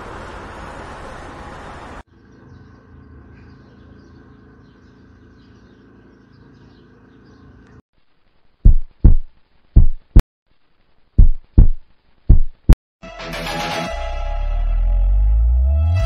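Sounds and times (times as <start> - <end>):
faint bird chirps: 2.1 - 7.8.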